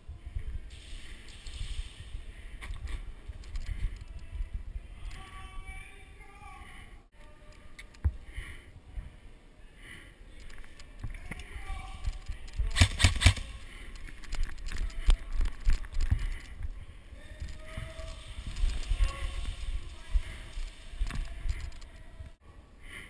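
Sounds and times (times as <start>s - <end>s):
rattle of sharp clicks: 2.7s - 4.3s, 10.4s - 16.6s.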